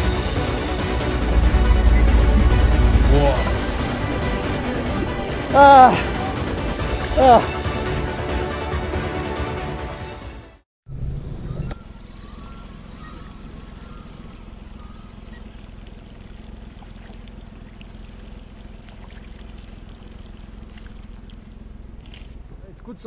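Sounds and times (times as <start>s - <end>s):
boat engine rumble: 0.0s - 10.1s, 10.9s - 23.0s
water trickling against hull: 12.0s - 22.6s.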